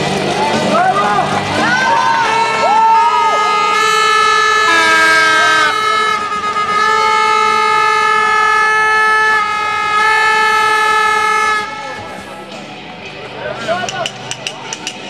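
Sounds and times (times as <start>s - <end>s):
air horn blasts: 1.9s - 12.3s
different-pitched air horn: 2.1s - 12.3s.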